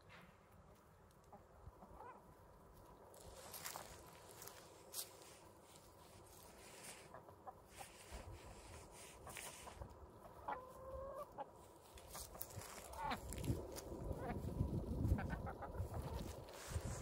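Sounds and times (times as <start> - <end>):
chickens clucking: 1.0 - 5.2, 5.8 - 17.0
drawn-out chicken call: 1.3 - 2.4, 6.4 - 17.0.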